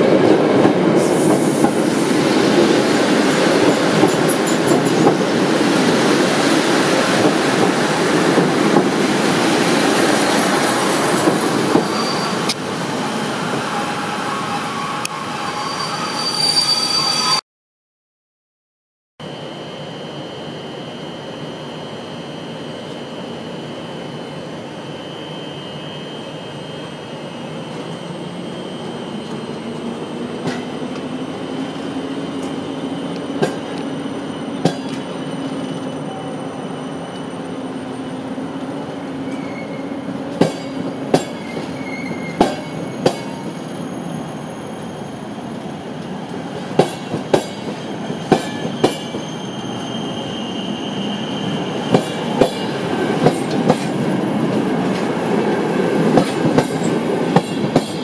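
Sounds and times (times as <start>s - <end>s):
train rumble and hum: 0.0s - 15.7s, 19.3s - 58.0s.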